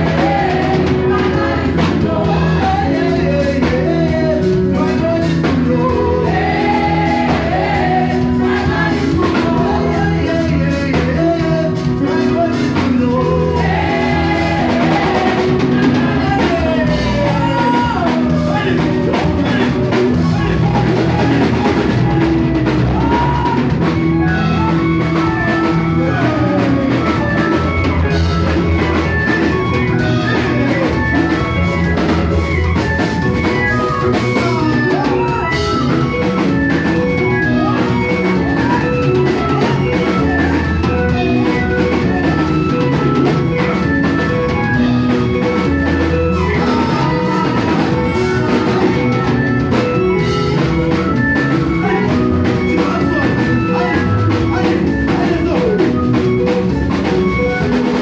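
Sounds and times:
people singing: 0.0s - 32.1s, 33.5s - 43.8s, 44.5s - 50.7s, 51.7s - 55.6s
drum kit beat: 0.0s - 58.0s
gospel band playing: 0.0s - 58.0s.

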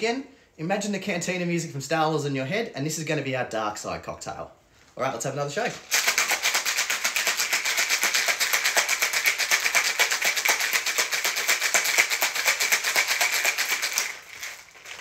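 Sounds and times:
ice rattling in cocktail shaker: 5.8s - 15.0s.

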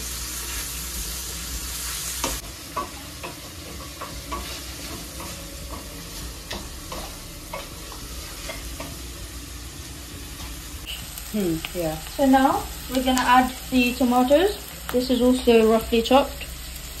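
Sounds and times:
onions sizzling in a pan: 0.0s - 17.0s
spatula knocking and scraping pan: 2.2s - 9.1s.

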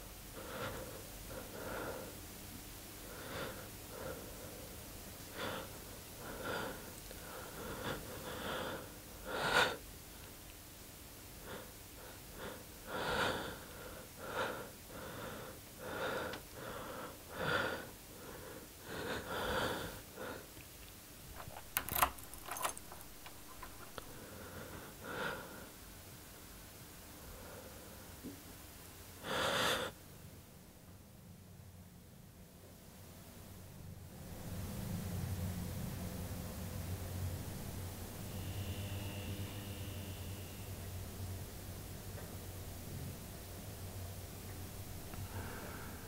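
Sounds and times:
door handle clicks: 21.4s - 24.1s.

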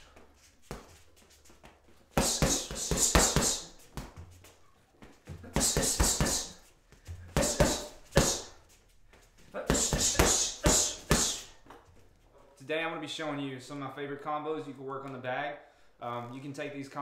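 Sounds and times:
boxing gloves punching heavy bag: 2.1s - 4.2s, 5.3s - 8.6s, 9.6s - 11.5s
hiss: 7.4s - 8.5s.

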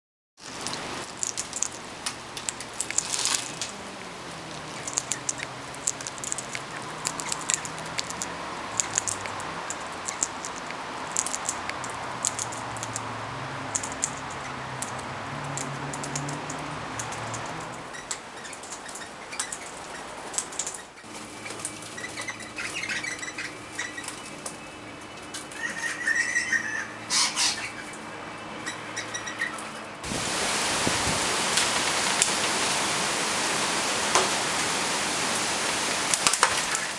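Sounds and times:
beaks and feet clicking: 0.4s - 29.8s
parrot chirps: 21.9s - 24.3s, 25.6s - 28.0s, 28.6s - 29.6s.

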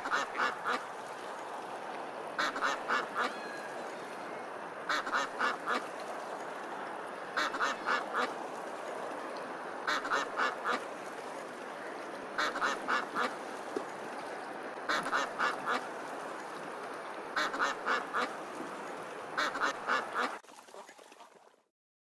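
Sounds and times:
duck quacking: 0.0s - 0.8s, 2.4s - 3.4s, 4.9s - 5.8s, 7.4s - 8.3s, 9.9s - 10.8s, 12.4s - 13.4s, 14.9s - 15.8s, 17.4s - 18.3s, 19.4s - 20.4s
steady background hiss: 0.0s - 20.4s.

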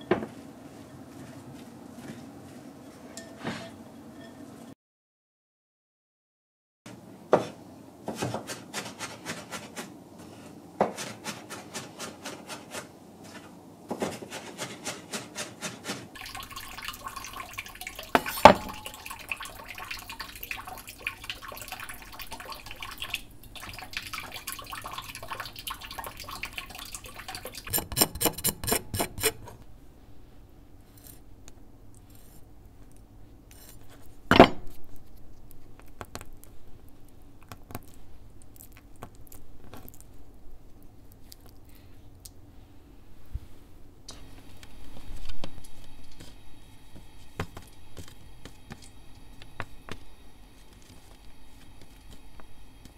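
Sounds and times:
dish clatter: 18.1s - 19.1s.

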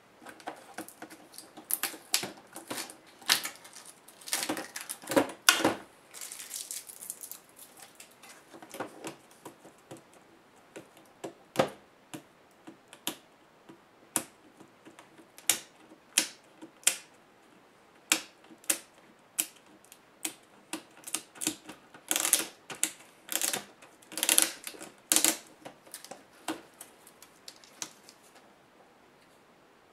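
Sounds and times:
scraping and rustling: 0.1s - 10.3s.

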